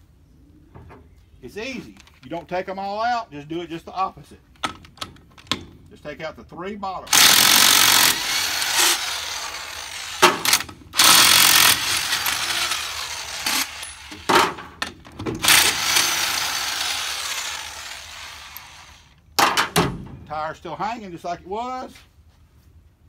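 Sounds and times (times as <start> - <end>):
impact wrench hammering: 7.1 - 18.7.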